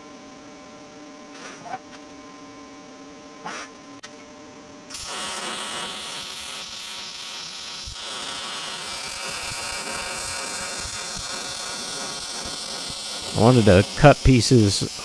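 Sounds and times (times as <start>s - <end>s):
welding arc crackling hiss: 4.9s - 15.0s.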